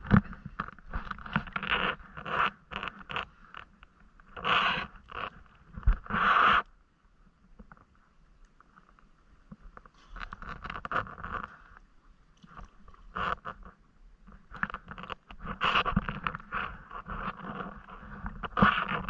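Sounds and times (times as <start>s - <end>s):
water splashing and sloshing: 7.4s - 19.0s.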